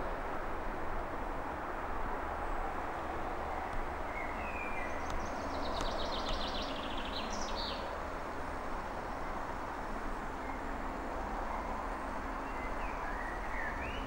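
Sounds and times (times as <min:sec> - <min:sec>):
rushing background noise: 0:00.0 - 0:14.0
small songbird singing: 0:04.1 - 0:07.9, 0:12.4 - 0:14.0.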